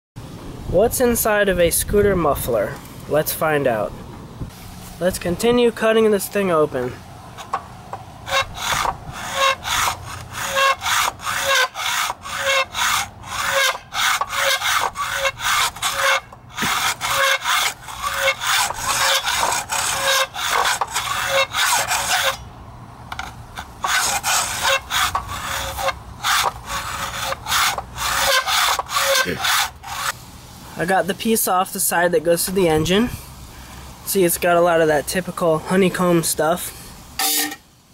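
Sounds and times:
hacksaw cutting sheet metal: 0:08.2 - 0:22.4, 0:23.2 - 0:30.2, 0:37.2 - 0:37.6.

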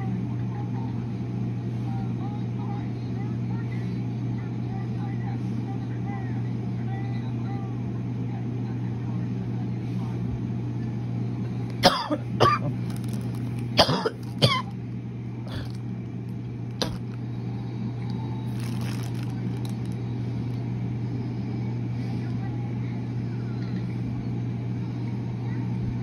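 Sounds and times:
steady low hum: 0:00.0 - 0:26.0
person coughing: 0:11.8 - 0:12.8, 0:13.8 - 0:14.7, 0:15.5 - 0:15.8, 0:16.8 - 0:17.1.

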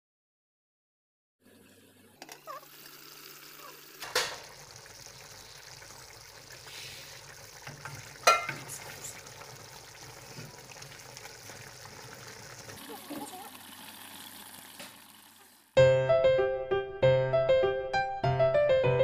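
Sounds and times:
stew sizzling in a pot: 0:02.2 - 0:15.8.

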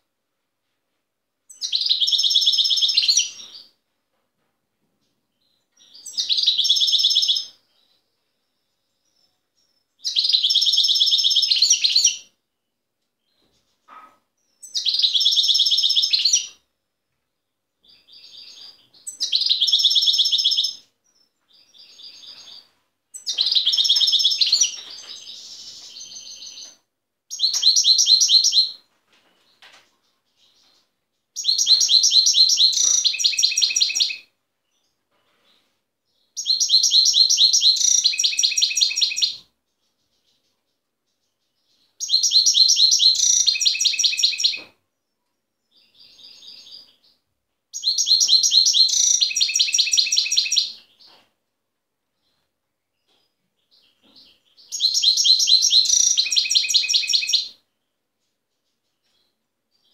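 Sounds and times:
goldfinch twittering song: 0:53.7 - 0:57.5.

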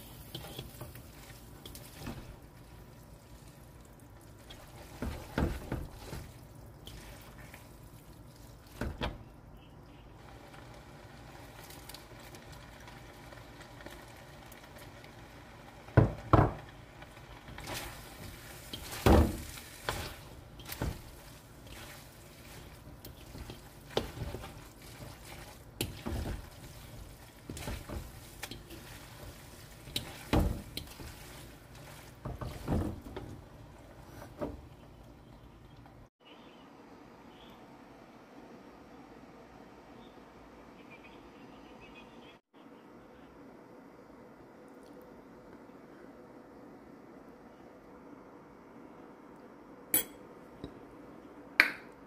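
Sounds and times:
noodles frying hiss: 0:00.0 - 0:08.8, 0:10.2 - 0:34.4.

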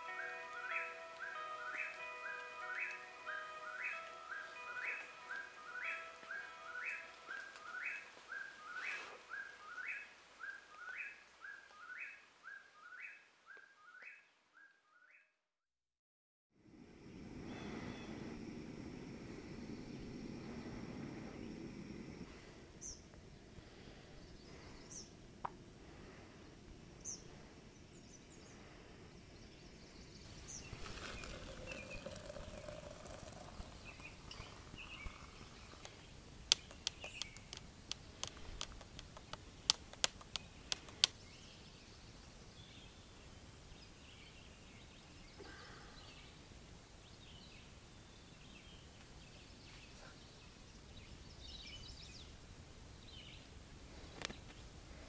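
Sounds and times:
bird chirps: 0:00.0 - 0:15.3, 0:29.4 - 0:45.4
spoon clinking against a mug: 0:30.7 - 0:35.8.

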